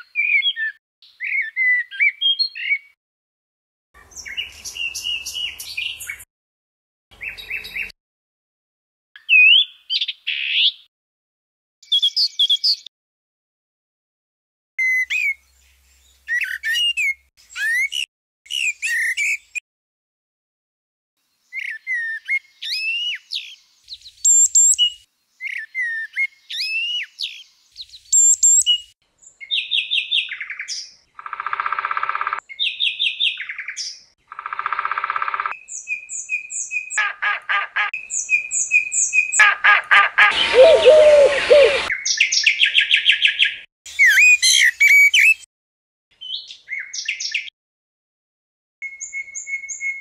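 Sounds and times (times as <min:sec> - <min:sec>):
birds singing and calling: 0:00.0 - 0:03.0, 0:04.0 - 0:06.3, 0:07.2 - 0:07.9, 0:09.2 - 0:10.9, 0:11.8 - 0:12.9, 0:14.8 - 0:19.6, 0:21.4 - 0:45.5, 0:46.2 - 0:47.5, 0:48.8 - 0:50.0
harsh buzzy bird calls: 0:39.2 - 0:41.9.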